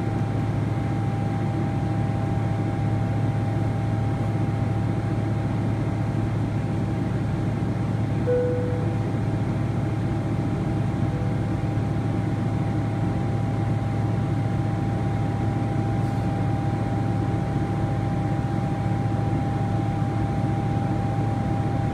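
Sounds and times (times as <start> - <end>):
airplane cabin engine hum: 0.0 - 21.9
thin steady whine: 8.2 - 21.9.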